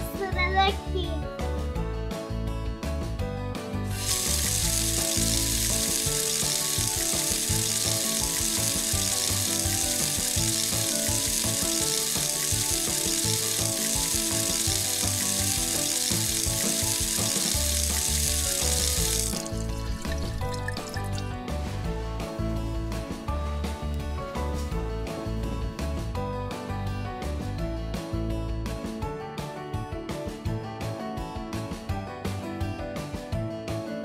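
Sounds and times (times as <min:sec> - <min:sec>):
children's background music: 0:00.0 - 0:34.0
tap water running into basin: 0:03.9 - 0:21.4.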